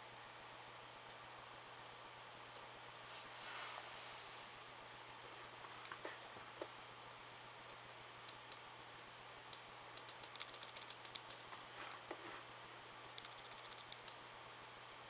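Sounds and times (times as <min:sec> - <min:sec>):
low steady hum: 0:00.0 - 0:15.0
mouse scroll wheel clicking: 0:09.5 - 0:12.0, 0:13.2 - 0:14.2.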